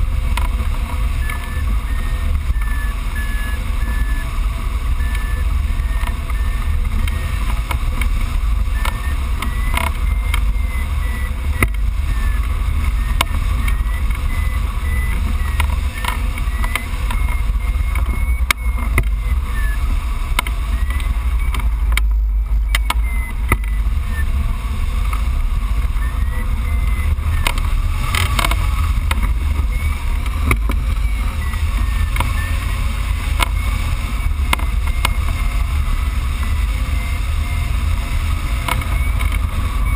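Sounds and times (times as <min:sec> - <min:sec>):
short high beeps: 0:01.1 - 0:07.9, 0:08.6 - 0:24.4, 0:25.8 - 0:28.6, 0:29.5 - 0:35.8, 0:36.5 - 0:39.9.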